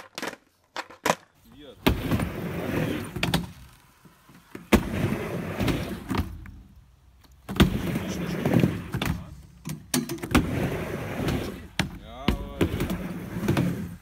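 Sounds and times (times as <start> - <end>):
skateboard wheels rolling: 0.0 - 14.0
skateboard slapping on ramp: 1.8 - 3.7, 4.6 - 6.6, 7.4 - 9.3, 10.2 - 14.0.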